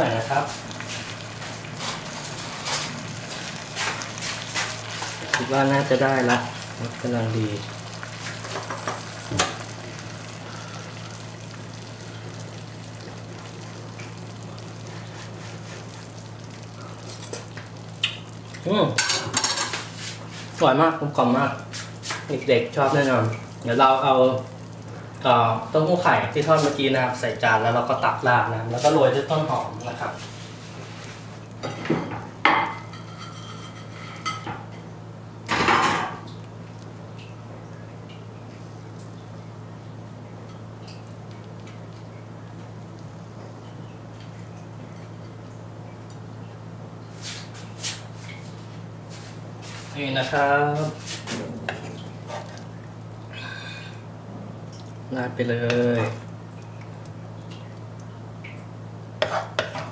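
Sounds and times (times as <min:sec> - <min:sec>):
low steady hum: 0:00.0 - 0:59.9
sauce simmering in a wok: 0:00.2 - 0:27.2
dishware and utensils clattering: 0:31.6 - 0:34.7.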